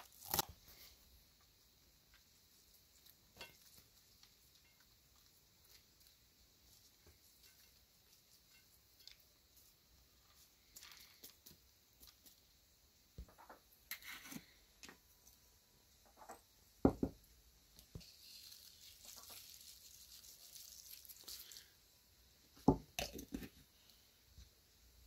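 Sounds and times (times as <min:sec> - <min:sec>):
salt sprinkling hiss: 0:17.8 - 0:22.1.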